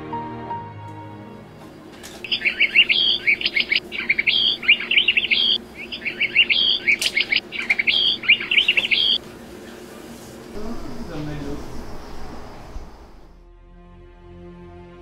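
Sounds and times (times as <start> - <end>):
faint steady hum: 1.4 - 13.4
bird twittering: 2.2 - 9.2.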